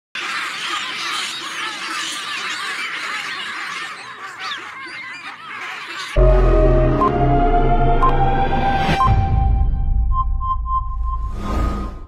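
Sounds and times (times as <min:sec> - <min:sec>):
baboons screaming and barking: 0:00.2 - 0:06.2
loud electronic music: 0:06.2 - 0:10.4.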